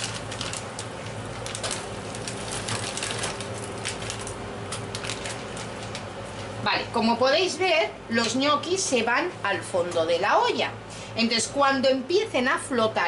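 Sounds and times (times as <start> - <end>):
plastic bag rustling: 0.0 - 6.6.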